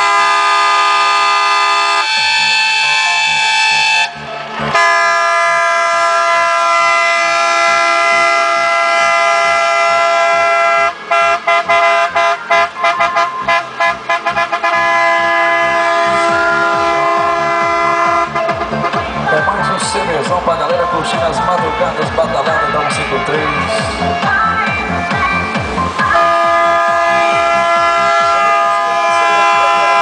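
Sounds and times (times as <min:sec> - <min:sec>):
multi-tone truck air horn: 0:00.0 - 0:19.3, 0:26.0 - 0:30.0.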